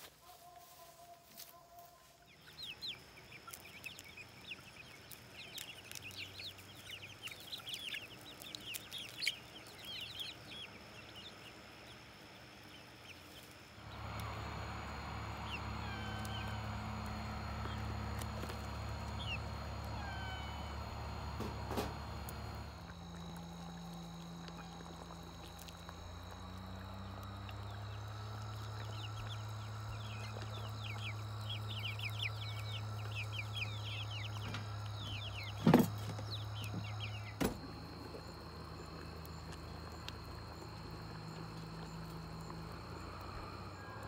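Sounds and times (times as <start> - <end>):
rapid high bird chirping: 2.3 - 11.6, 13.9 - 43.1
low engine hum: 13.8 - 44.0.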